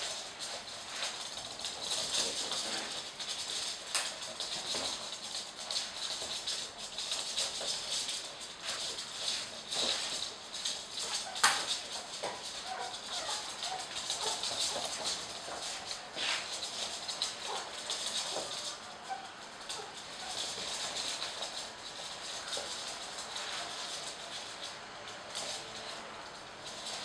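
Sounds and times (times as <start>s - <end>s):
mop swishing on floor: 0.0s - 3.2s, 13.6s - 18.5s
puppy claws clicking on floor: 0.0s - 27.0s.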